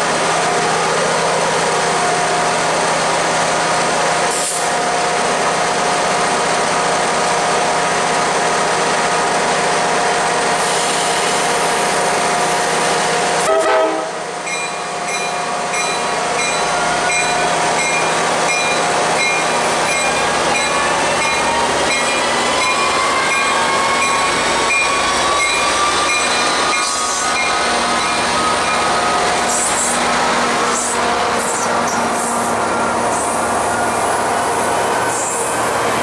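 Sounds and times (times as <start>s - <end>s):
diesel locomotive engine: 0.0s - 36.0s
locomotive bell ringing: 14.4s - 29.3s.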